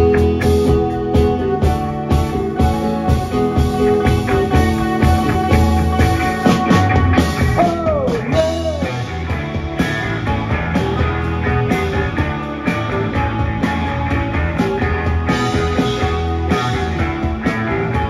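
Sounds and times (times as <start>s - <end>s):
live rock band playing: 0.0s - 18.0s
guitar note sliding down: 2.6s - 9.2s.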